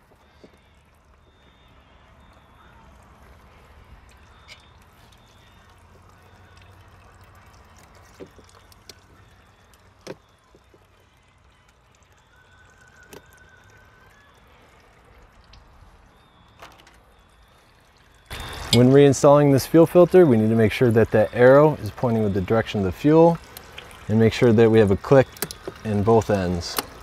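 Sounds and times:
oil trickling: 0:00.0 - 0:27.0
fuel filter clicking into fittings: 0:04.0 - 0:14.0, 0:19.8 - 0:27.0.

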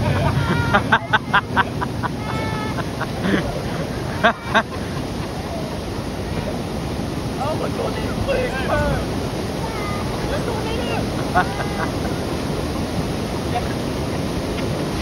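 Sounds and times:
people laughing: 0:00.0 - 0:06.6, 0:07.9 - 0:09.1, 0:10.2 - 0:12.6
river water pouring down a weir: 0:00.0 - 0:15.0.

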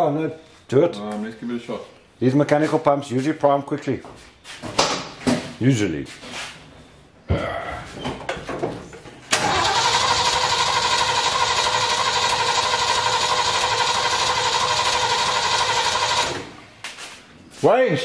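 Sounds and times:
engine cranking by starter motor: 0:09.3 - 0:16.5.

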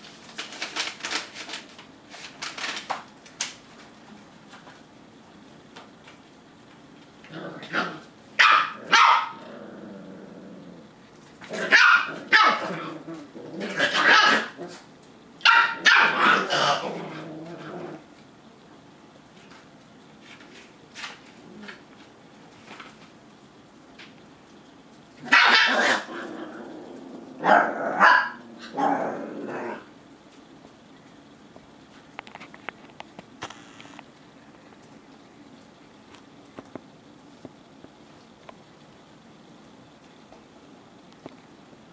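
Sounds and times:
puppies barking: 0:08.4 - 0:09.4, 0:11.6 - 0:12.9, 0:13.7 - 0:14.7, 0:15.4 - 0:16.8, 0:25.2 - 0:26.2, 0:27.4 - 0:28.9.

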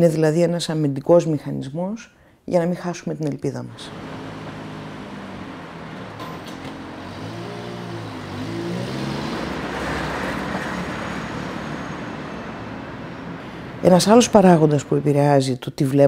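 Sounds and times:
cars driving on wet road: 0:03.7 - 0:15.3
car engine passing: 0:03.7 - 0:15.4.

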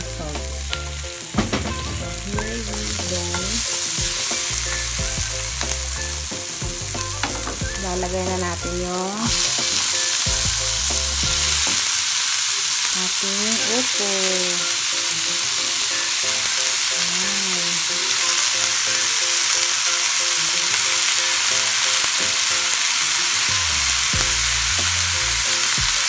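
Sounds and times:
vegetables sizzling in oil: 0:00.0 - 0:26.0.

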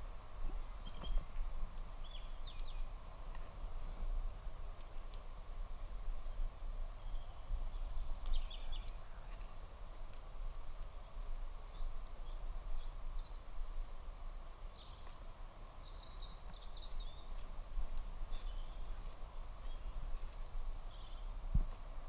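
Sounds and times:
bird chirps: 0:00.6 - 0:02.9, 0:06.3 - 0:09.5, 0:14.8 - 0:21.9.

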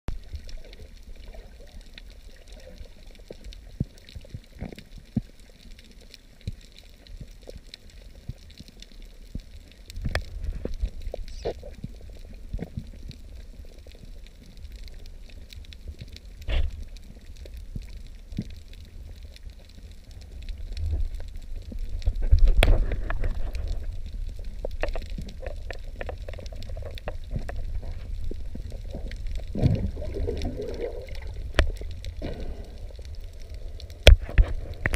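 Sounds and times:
underwater rumble of moving water: 0:00.1 - 0:34.9
underwater clicks and knocks: 0:09.3 - 0:13.2, 0:20.8 - 0:33.2, 0:33.8 - 0:34.9.

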